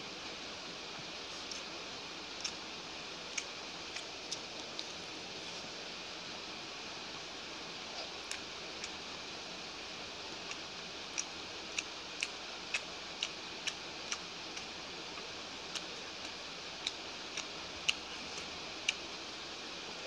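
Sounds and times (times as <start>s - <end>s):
steady hiss: 0.0s - 20.0s
light sharp eating clicks: 1.4s - 1.7s, 2.3s - 2.7s, 3.3s - 5.1s, 7.9s - 9.0s, 10.4s - 19.2s.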